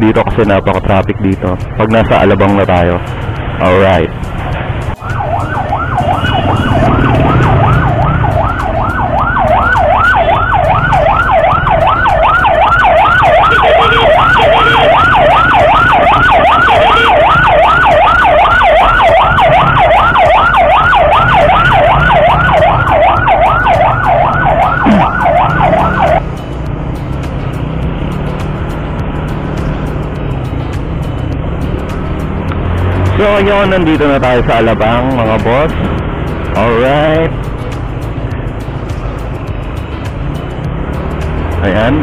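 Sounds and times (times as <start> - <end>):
emergency siren yelping: 5.0 - 26.2.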